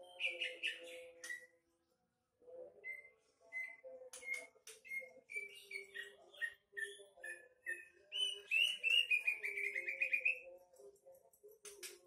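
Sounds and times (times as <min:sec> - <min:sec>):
bird singing whistled notes: 0:02.8 - 0:10.4.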